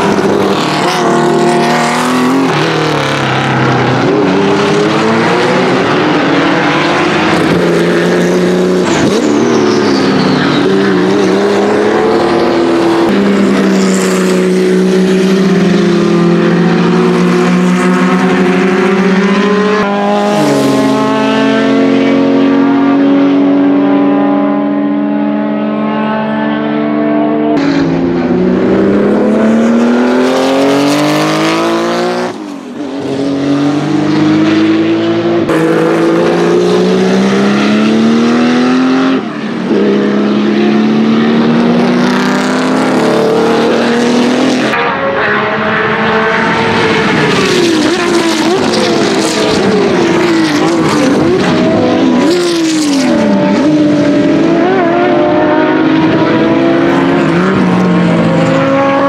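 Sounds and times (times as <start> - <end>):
race car engines accelerating: 0.0 - 59.0.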